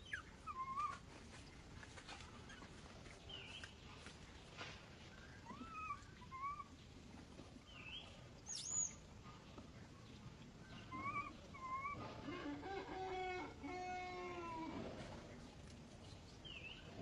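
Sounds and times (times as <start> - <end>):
young monkeys whimpering coos: 0.0 - 1.1, 5.4 - 6.8, 10.7 - 15.0.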